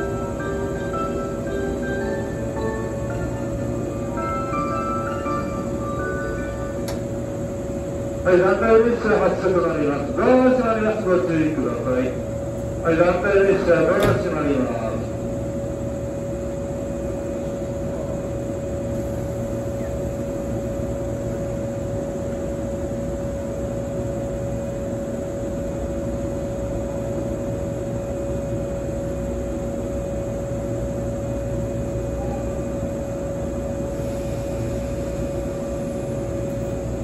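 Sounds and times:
electric train equipment hum: 0.0 - 37.0.

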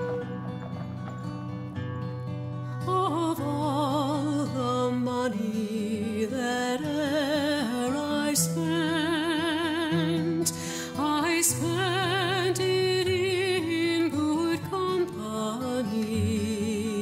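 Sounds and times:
person singing with vibrato: 0.0 - 1.1.

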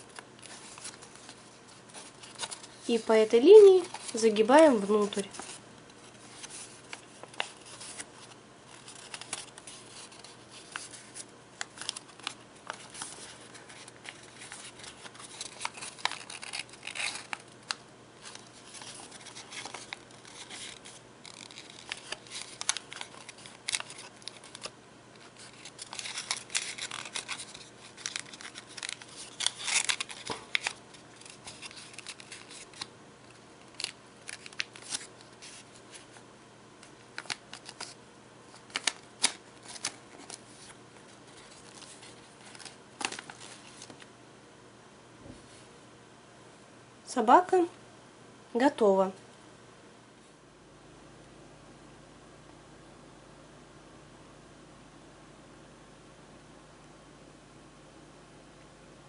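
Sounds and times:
paper crackling and rustling: 0.0 - 36.2, 36.8 - 44.1.

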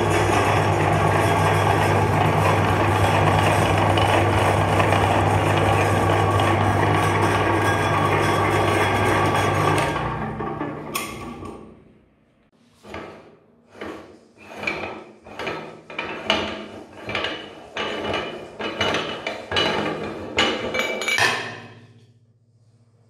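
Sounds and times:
meat grinder motor running down: 0.0 - 11.4
metal clanks and knocks: 12.8 - 22.1.

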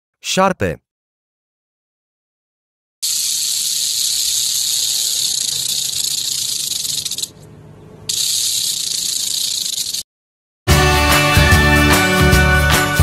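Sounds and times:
rattlesnake tail rattling: 3.0 - 7.4, 8.1 - 10.0.

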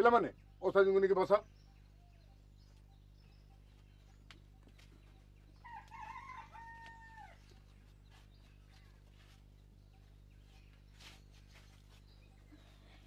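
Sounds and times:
steady low hum: 0.0 - 13.0
rooster crowing: 5.6 - 7.5.

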